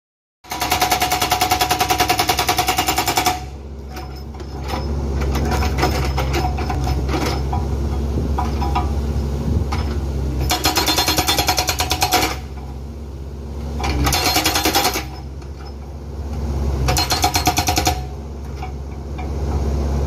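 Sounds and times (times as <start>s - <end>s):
hydraulic breaker hammering rock: 0.5s - 8.9s, 9.8s - 12.7s, 13.8s - 15.8s, 16.8s - 19.3s
diesel engine running: 0.5s - 20.0s.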